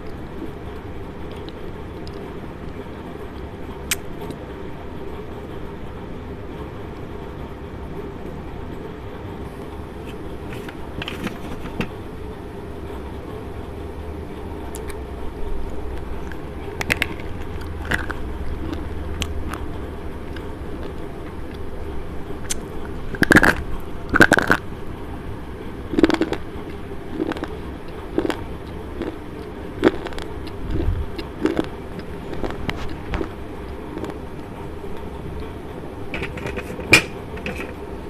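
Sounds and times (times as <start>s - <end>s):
crunchy chewing: 16.0s - 21.7s, 22.4s - 24.6s, 25.9s - 35.1s.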